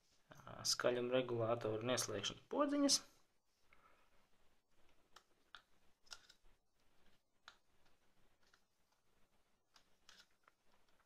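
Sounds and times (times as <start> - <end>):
plastic clicks and scrapes: 4.8 - 11.0.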